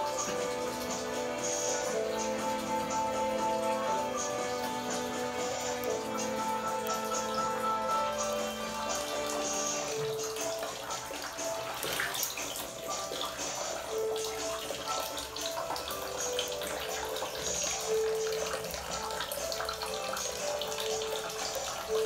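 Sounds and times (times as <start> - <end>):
background music: 0.0 - 22.0
water splashing in plastic tub: 0.0 - 22.0.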